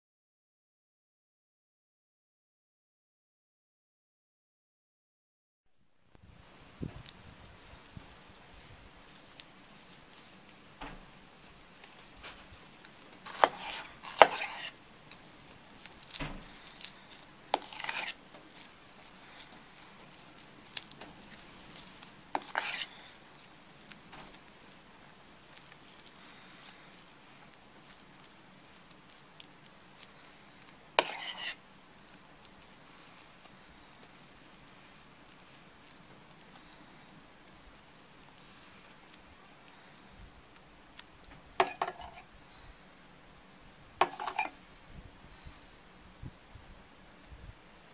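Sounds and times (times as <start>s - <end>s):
knife scraping a steel bowl: 13.2s - 14.8s, 16.4s - 19.5s, 22.3s - 23.0s, 31.0s - 31.6s, 41.6s - 42.3s, 44.0s - 44.6s.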